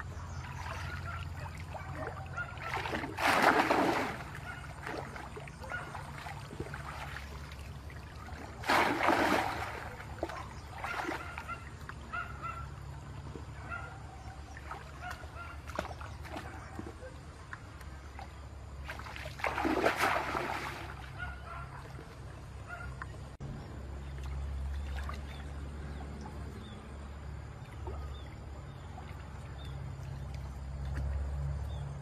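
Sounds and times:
sloshing and wading: 0:00.0 - 0:32.0
loud splashes in water: 0:00.5 - 0:07.6, 0:08.2 - 0:11.7, 0:18.8 - 0:21.6.

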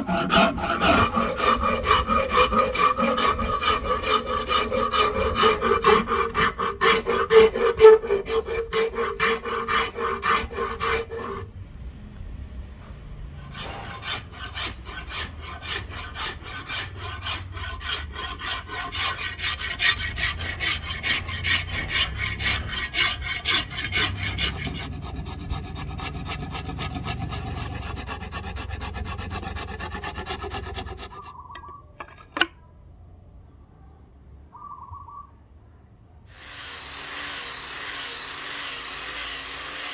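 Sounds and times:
file rasping on wood: 0:00.0 - 0:11.5, 0:13.4 - 0:32.5, 0:36.3 - 0:39.9.

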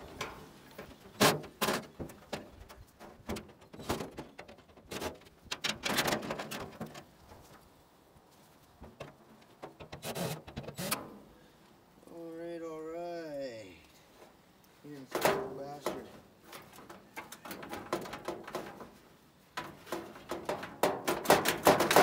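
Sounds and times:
sheet metal knocking and rattling: 0:17.1 - 0:18.9, 0:19.6 - 0:22.0.

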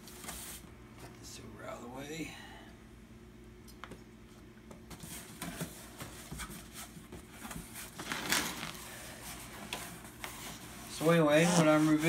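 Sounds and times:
styrofoam box scraping in carton: 0:10.9 - 0:12.0.

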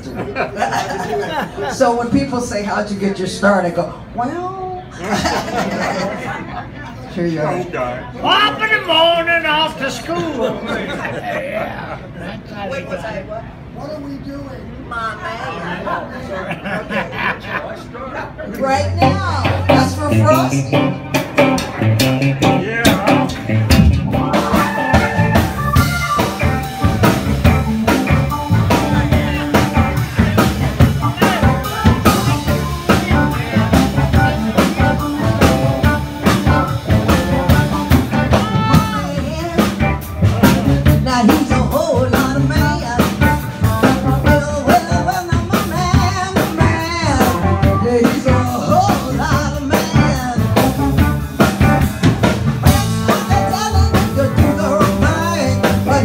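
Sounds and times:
live blues-rock band: 0:18.3 - 0:56.0.

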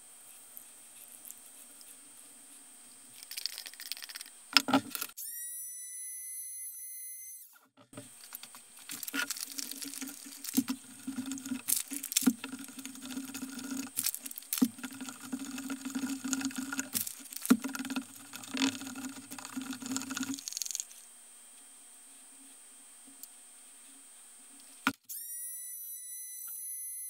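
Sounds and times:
stick stirring wet plaster: 0:08.1 - 0:20.9.

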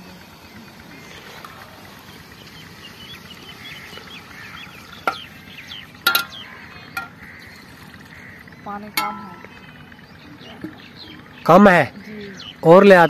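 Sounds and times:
small birds chirping: 0:00.0 - 0:13.0
steel utensils clinking together: 0:06.0 - 0:06.4.

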